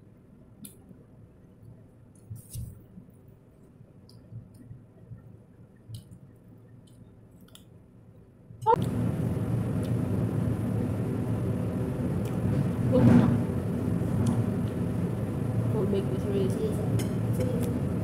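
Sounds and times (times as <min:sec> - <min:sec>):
loud low noise with hiss: 0:08.4 - 0:18.0.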